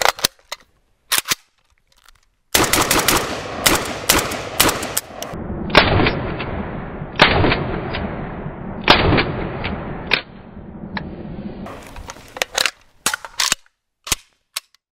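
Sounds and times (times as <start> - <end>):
metallic clicks of rifle action: 0.0 - 2.4, 11.8 - 14.8
rifle shots echoing: 2.5 - 10.4.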